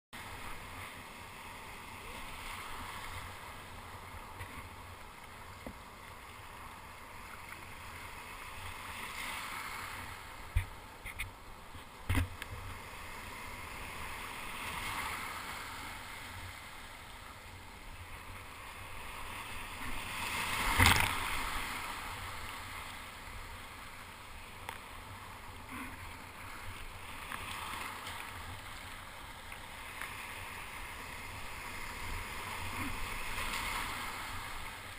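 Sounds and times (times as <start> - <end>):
wave splash: 0.2 - 34.9
whitewater surf rushing: 18.1 - 24.1, 25.1 - 34.9.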